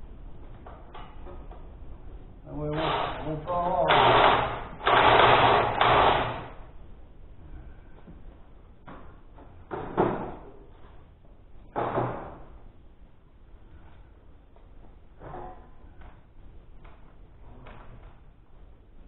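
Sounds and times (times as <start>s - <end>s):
air impact wrench bursts: 2.8s - 6.5s.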